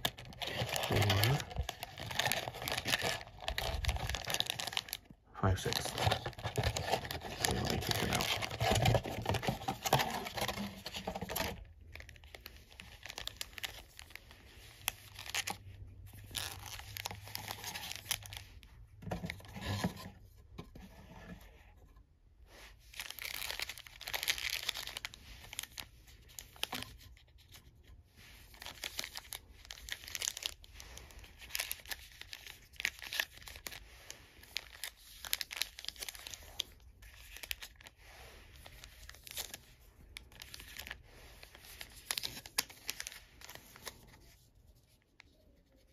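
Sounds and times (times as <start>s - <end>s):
foil wrappers crinkling: 0.0s - 18.5s, 23.0s - 27.0s, 28.5s - 37.9s, 38.6s - 44.2s.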